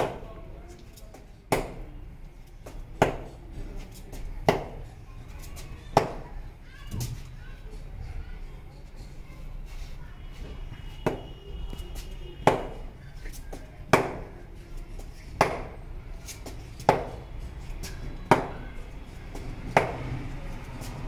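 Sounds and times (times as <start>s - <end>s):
cricket bat hitting ball: 15.4s - 15.8s, 16.9s - 17.2s, 19.7s - 20.0s.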